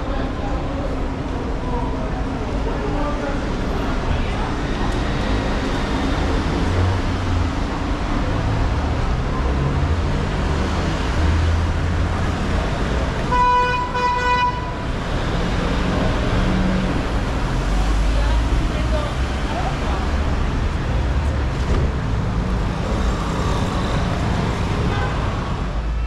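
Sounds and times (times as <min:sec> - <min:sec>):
street traffic rumbling: 0:00.0 - 0:26.0
vehicle horn beeps: 0:13.3 - 0:14.8.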